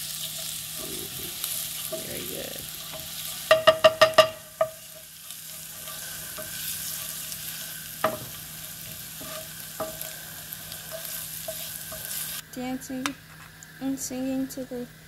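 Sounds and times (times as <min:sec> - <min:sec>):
garlic sizzling in oil: 0:00.0 - 0:14.9
wooden spoon scraping a pan: 0:00.1 - 0:12.4
spoon knocking against pan: 0:02.9 - 0:05.1, 0:08.0 - 0:08.4.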